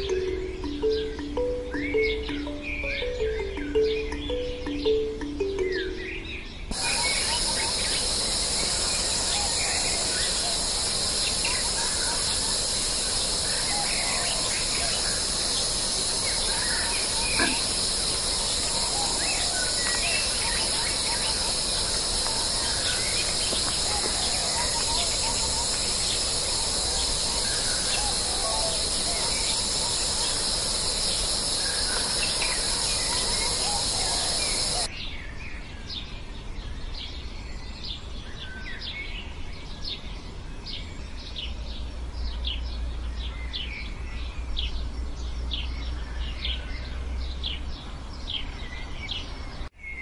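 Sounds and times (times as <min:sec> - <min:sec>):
high-pitched insect chorus: 0:00.0 - 0:34.9
bird chirps and calls: 0:00.0 - 0:35.1.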